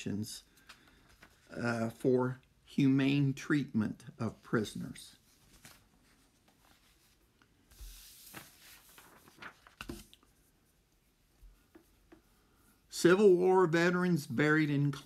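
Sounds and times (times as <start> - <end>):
soft rustle: 4.5 - 12.9.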